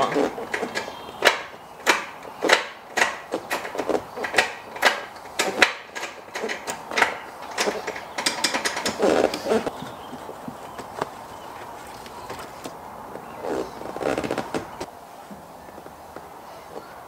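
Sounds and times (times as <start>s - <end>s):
gear lever clicks and clunks: 0.0s - 10.0s.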